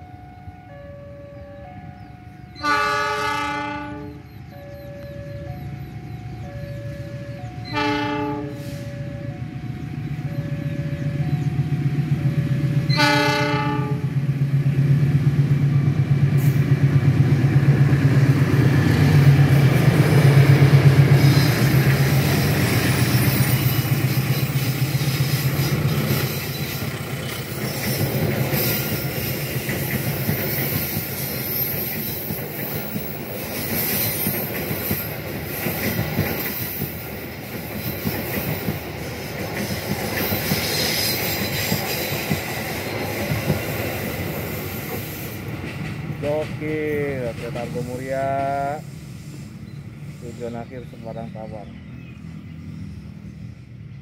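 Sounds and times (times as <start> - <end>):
locomotive engine drone: 0.0 - 54.0
locomotive horn blast: 2.5 - 11.2, 12.8 - 14.2
train wheels clattering over rails: 10.9 - 49.3
high hiss from running gear: 47.6 - 51.0.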